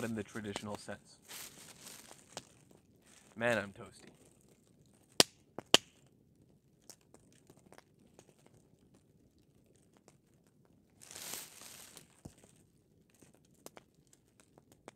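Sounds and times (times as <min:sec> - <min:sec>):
space blanket crinkling: 0:00.0 - 0:04.6, 0:11.0 - 0:12.6
campfire crackling: 0:00.0 - 0:14.9.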